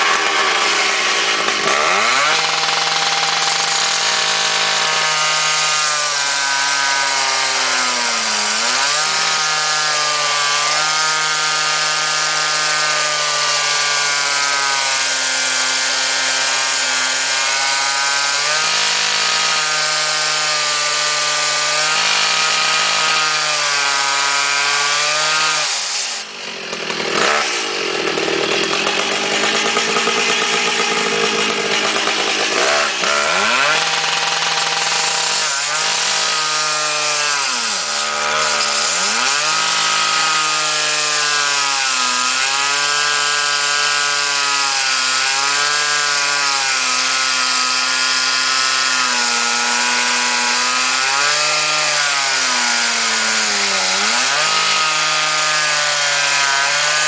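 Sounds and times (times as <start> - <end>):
cut-off saw engine running: 0.0 - 57.0.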